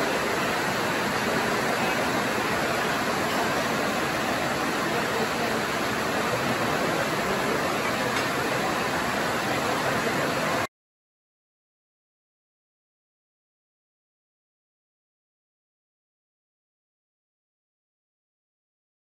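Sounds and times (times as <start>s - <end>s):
loud rushing noise: 0.0s - 10.7s.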